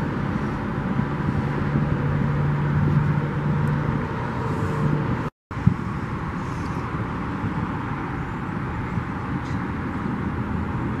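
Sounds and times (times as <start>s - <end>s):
low hum: 0.0s - 7.7s
road traffic rumble: 0.0s - 11.0s.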